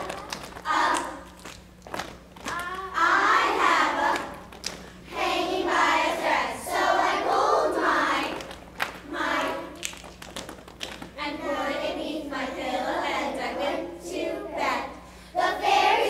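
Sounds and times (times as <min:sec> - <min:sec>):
young children singing in unison: 0:02.6 - 0:04.5, 0:05.1 - 0:08.4, 0:11.2 - 0:16.0.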